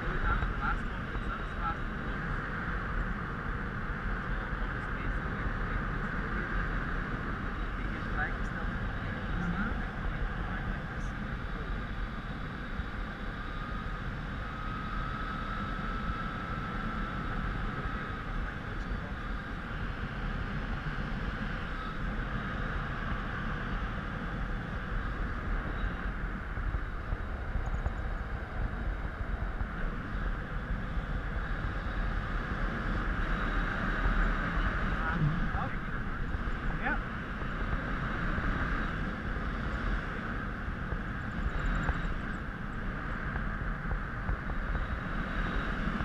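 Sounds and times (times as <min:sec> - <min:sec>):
wind rushing on microphone: 0:00.0 - 0:46.0.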